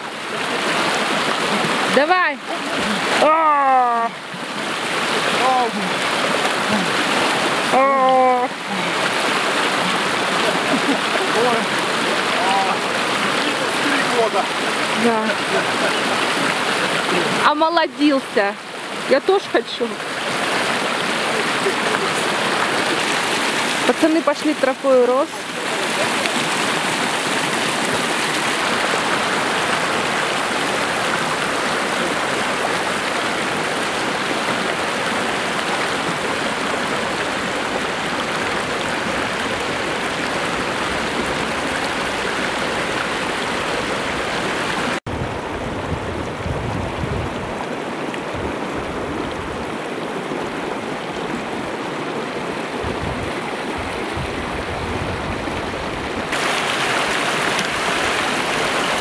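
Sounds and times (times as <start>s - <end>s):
stream rushing over rocks: 0.0s - 59.0s
low gusty rumbles: 45.1s - 49.8s, 52.7s - 56.3s.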